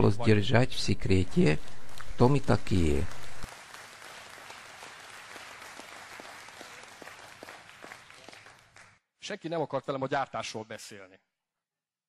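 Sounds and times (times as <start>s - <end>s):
audience applauding: 1.0s - 9.0s.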